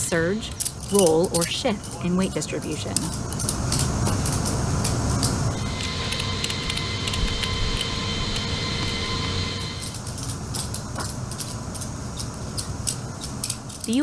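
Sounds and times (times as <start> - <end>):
aircraft cargo hold rumble: 0.0 - 14.0
high whine of aircraft systems: 0.0 - 14.0.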